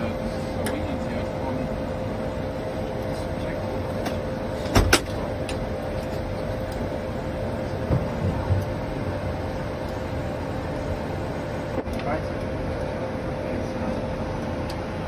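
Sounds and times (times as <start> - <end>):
constant mid-pitched tone: 0.0 - 15.0
flight deck hum and hiss: 0.0 - 15.0.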